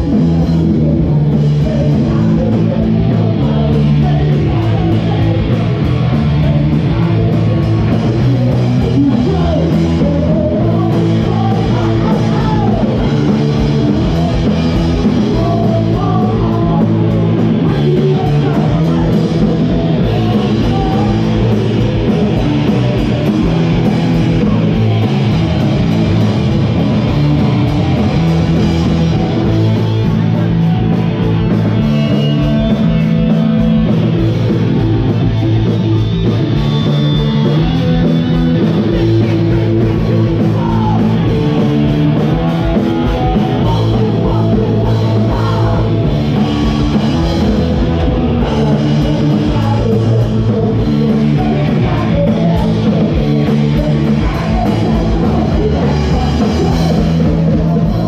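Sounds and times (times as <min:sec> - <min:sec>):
bass guitar: 0:00.0 - 0:58.0
drum kit: 0:00.0 - 0:58.0
electric guitars: 0:00.0 - 0:58.0.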